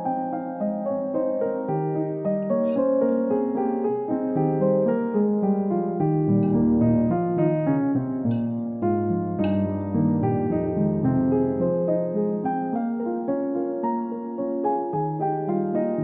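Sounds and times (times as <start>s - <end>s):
piano held notes: 2.0s - 13.8s.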